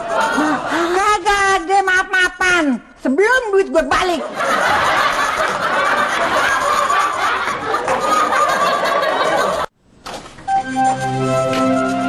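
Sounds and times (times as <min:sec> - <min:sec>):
laugh track: 0:00.0 - 0:01.3, 0:04.0 - 0:09.7.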